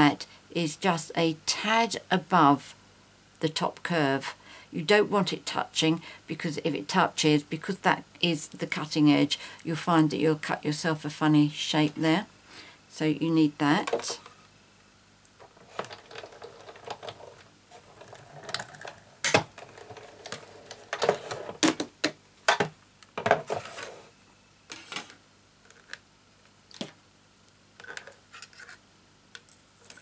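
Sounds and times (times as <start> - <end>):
plastic clicks and scrapes: 15.4 - 21.6.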